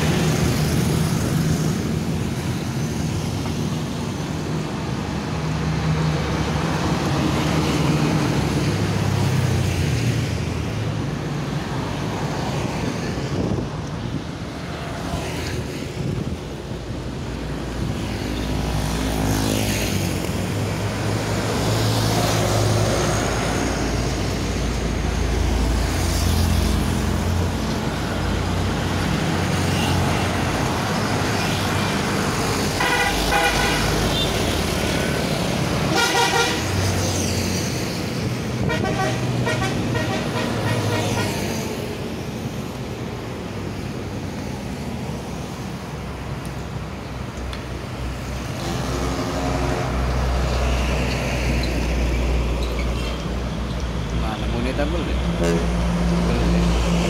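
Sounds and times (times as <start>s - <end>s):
highway traffic passing: 0.0s - 57.0s
multi-tone vehicle horn: 32.8s - 34.4s, 35.9s - 36.7s, 38.6s - 41.5s.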